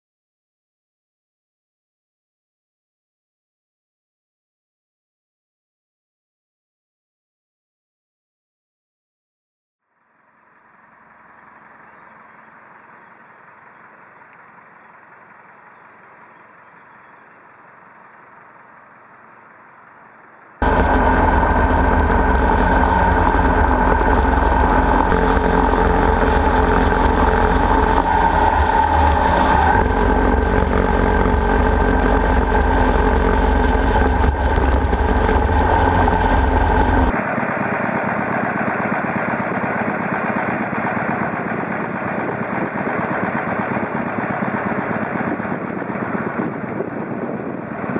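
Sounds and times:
motorcycle engine running: 0:10.3 - 0:47.9
wind rushing over microphone: 0:44.9 - 0:47.9.

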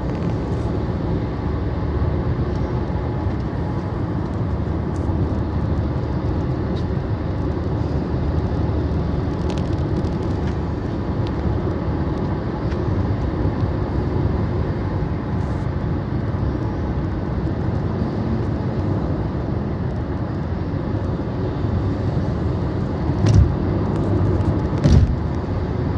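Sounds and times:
car cabin road rumble: 0:00.0 - 0:25.9
short thump: 0:23.2 - 0:23.5, 0:24.8 - 0:25.2.

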